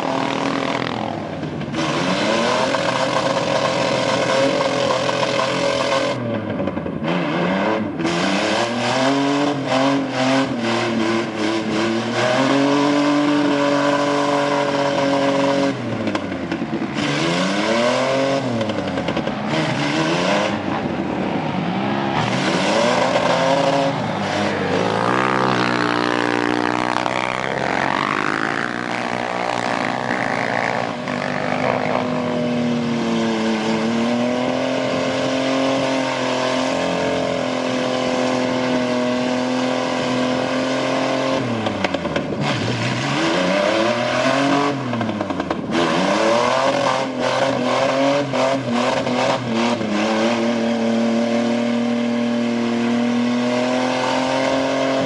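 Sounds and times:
truck engine revving: 0.0s - 55.0s
wheels spinning in mud: 21.7s - 32.4s.

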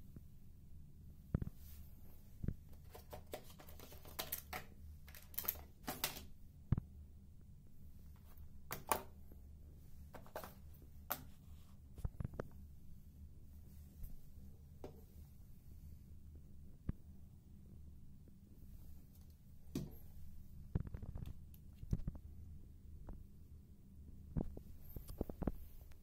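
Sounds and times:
steady low hum: 6.3s - 26.0s.

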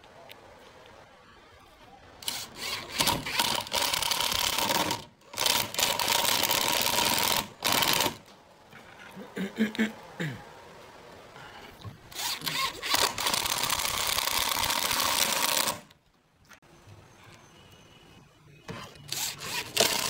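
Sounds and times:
power drill driving screws: 2.2s - 8.2s, 12.1s - 15.9s, 19.0s - 20.0s.

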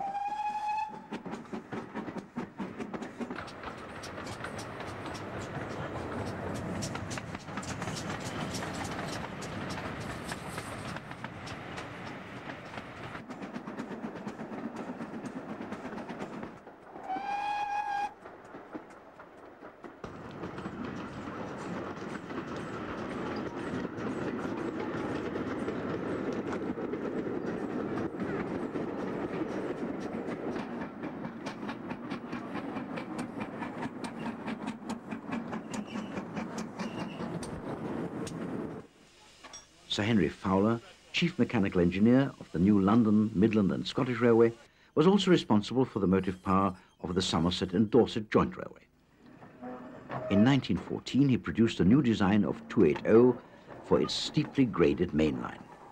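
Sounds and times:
steam whistle blast: 0.0s - 1.0s, 17.1s - 18.1s
steam train rumbling and clicking: 0.1s - 48.2s, 49.4s - 55.9s.

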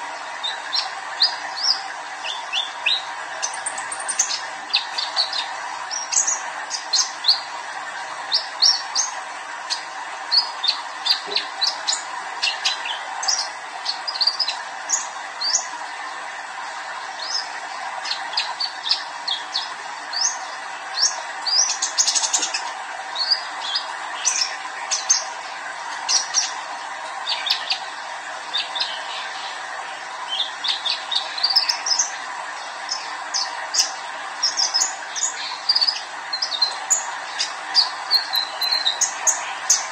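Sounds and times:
bird singing high chirps: 34.4s - 39.9s.

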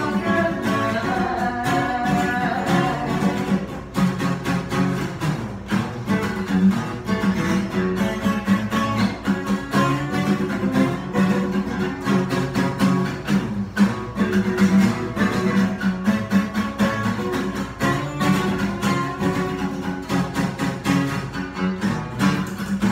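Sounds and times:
acoustic guitars strumming: 0.0s - 22.9s.

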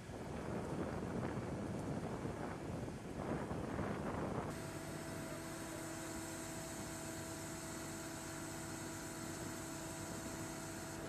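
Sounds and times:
machinery hum: 3.2s - 11.0s.

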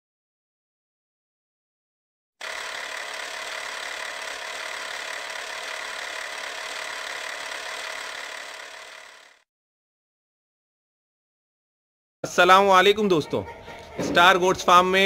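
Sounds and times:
film projector whirring: 2.4s - 9.5s.

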